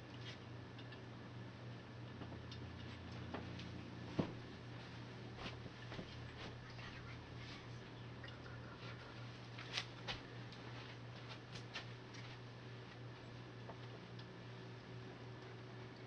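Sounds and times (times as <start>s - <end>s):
low hum: 0.0s - 11.1s.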